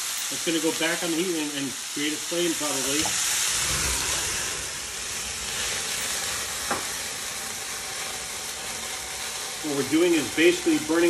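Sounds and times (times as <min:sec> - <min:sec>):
food sizzling in frying pan: 0:00.0 - 0:11.0
brandy flaming up: 0:02.8 - 0:11.0.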